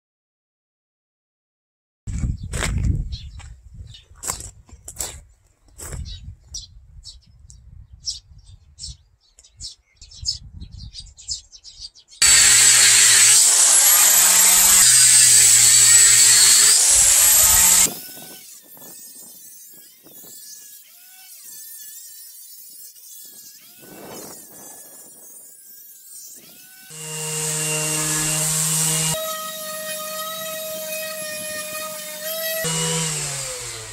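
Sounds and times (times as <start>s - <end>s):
drill sanding disc on wood: 12.2s - 20.8s, 21.4s - 33.9s.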